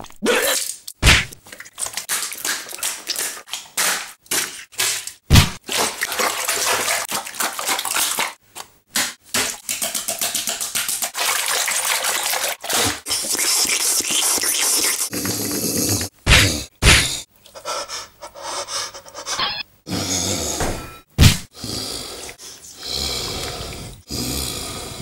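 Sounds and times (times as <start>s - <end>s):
heavy thud: 20.6s - 21.4s.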